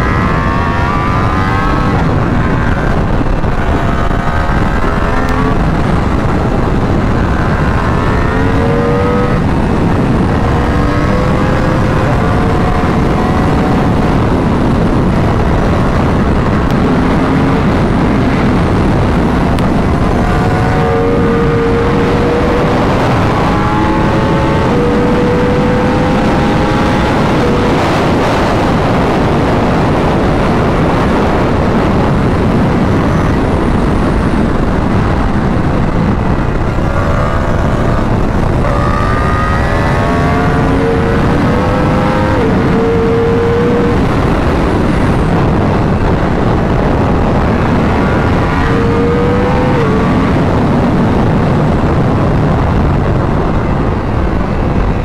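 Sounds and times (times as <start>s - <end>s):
motorcycle engine at high speed: 0.0s - 55.0s
wind noise: 0.0s - 55.0s.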